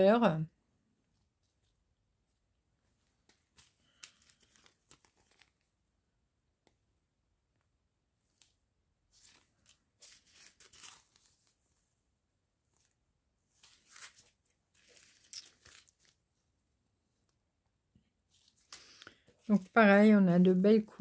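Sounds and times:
plastic bags crinkling: 0:03.3 - 0:05.7, 0:13.6 - 0:16.2.

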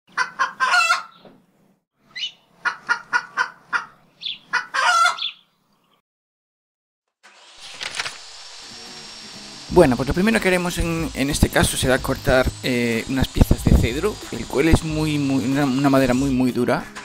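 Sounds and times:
chicken clucking: 0:00.1 - 0:01.2, 0:02.2 - 0:05.4
power tool whine: 0:07.2 - 0:17.0.

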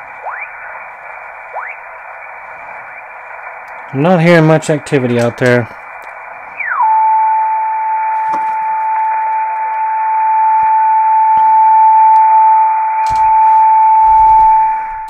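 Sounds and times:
radio band hiss: 0:00.0 - 0:06.8
steady radio beat tone: 0:00.0 - 0:15.0.

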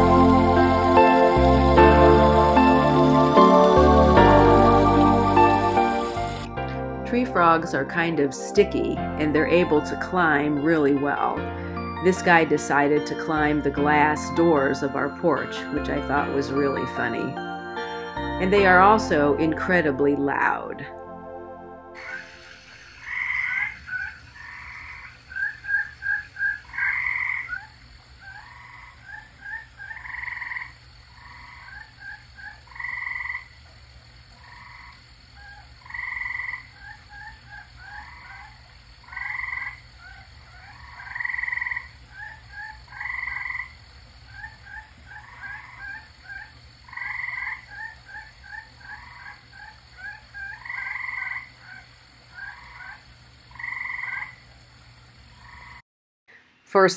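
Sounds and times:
frogs chirping: 0:00.0 - 0:06.6, 0:22.0 - 0:55.8
tree frogs calling: 0:22.0 - 0:54.6, 0:55.3 - 0:55.8.

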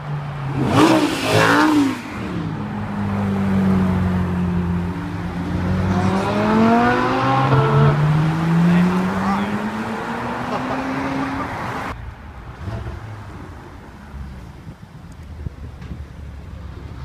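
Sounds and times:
sports car engines driving past: 0:00.2 - 0:14.6
engine revving: 0:00.5 - 0:02.5, 0:05.5 - 0:11.9
car accelerating away: 0:05.5 - 0:11.8.

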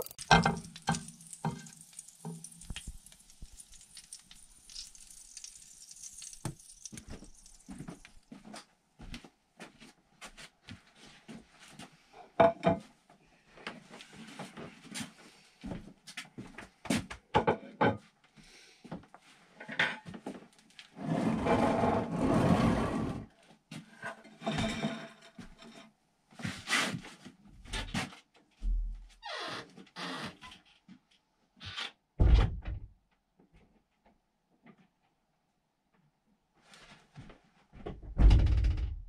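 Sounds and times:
rustling: 0:00.0 - 0:08.4
door shutting thump: 0:32.2 - 0:32.8.

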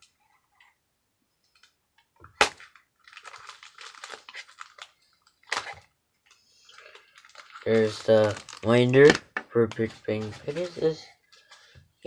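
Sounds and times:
plastic wrapping crinkling: 0:02.3 - 0:11.7.

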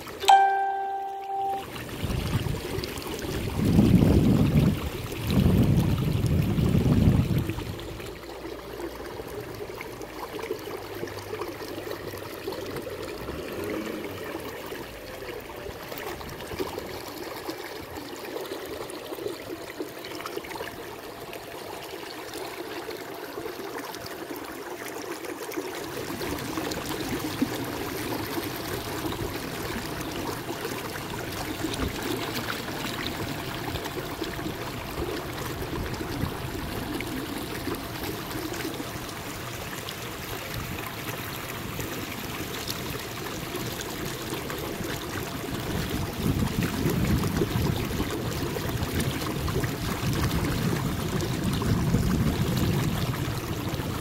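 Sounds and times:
water lapping against kayak hull: 0:22.2 - 0:54.0.

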